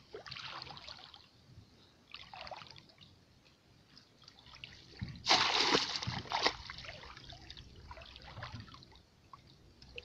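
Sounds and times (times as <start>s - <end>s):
hands splashing in muddy water: 5.2s - 7.2s.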